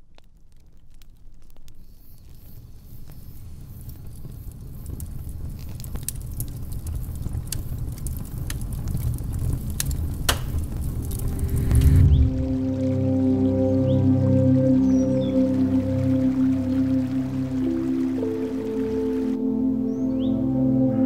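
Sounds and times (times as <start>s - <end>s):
fire flames rumbling: 0.0s - 18.5s
logs popping and crackling: 0.0s - 19.4s
music: 11.5s - 21.0s.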